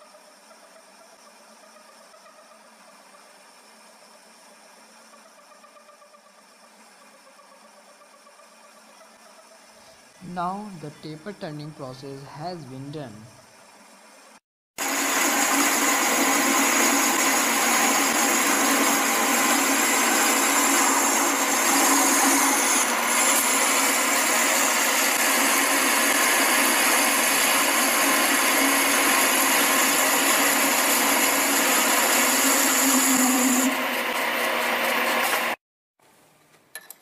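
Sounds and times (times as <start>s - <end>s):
lathe whirring with high whine: 10.0s - 35.6s.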